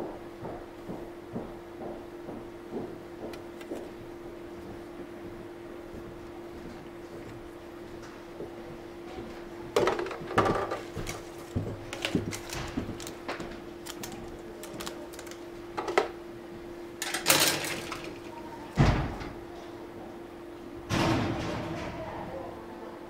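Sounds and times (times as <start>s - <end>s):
plastic parts clicking and rustling: 9.8s - 16.1s, 17.0s - 18.3s.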